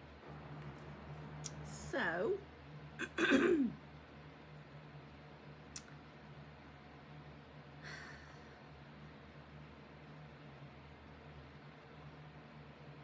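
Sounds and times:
low electrical hum: 0.0s - 13.0s
soft breathy sound: 7.8s - 8.8s.

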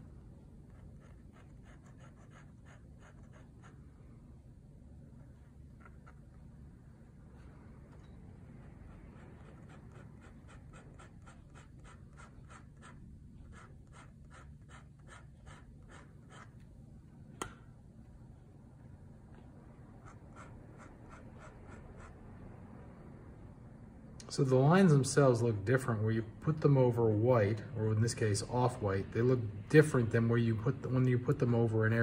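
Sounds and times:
pen nib scratching on paper: 0.6s - 3.9s, 5.2s - 6.4s, 8.4s - 16.7s, 20.0s - 22.2s.

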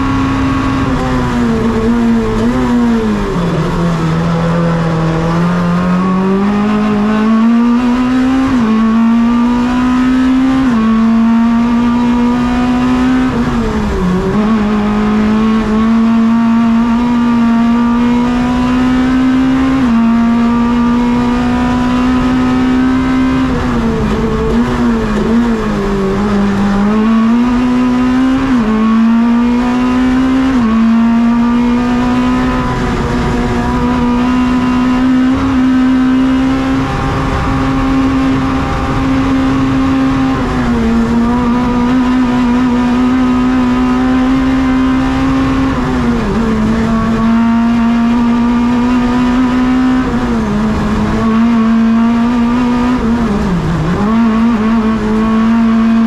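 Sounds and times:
race car engine at full throttle: 0.0s - 56.0s.

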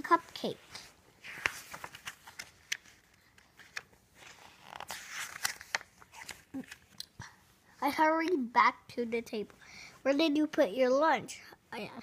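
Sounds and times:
book pages rustling: 0.0s - 7.2s.

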